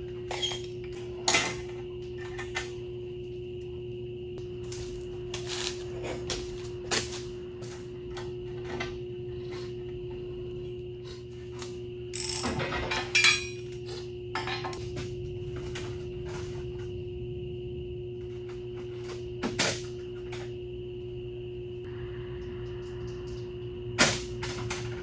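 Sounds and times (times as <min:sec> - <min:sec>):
steady hum: 0:00.0 - 0:25.0
metal parts clanking and rattling: 0:12.2 - 0:13.6.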